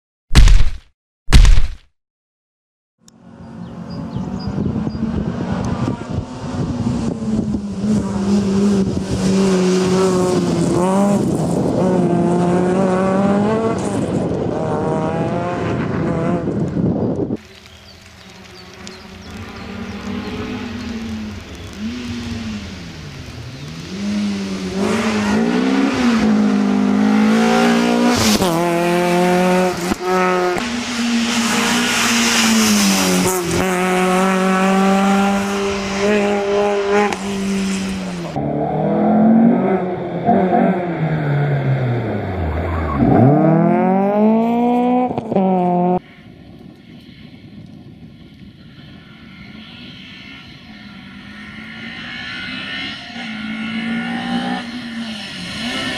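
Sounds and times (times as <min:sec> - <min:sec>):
tyre noise on loose surface: 0:00.3 - 0:01.9
rally car engine revving: 0:04.8 - 0:16.7, 0:18.5 - 0:46.0, 0:49.3 - 0:55.9.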